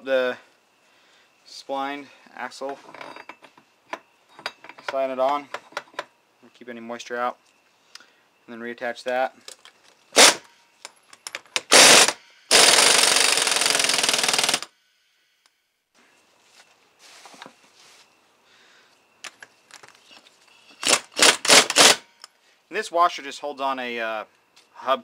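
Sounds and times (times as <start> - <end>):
impact wrench hammering: 11.3 - 14.7.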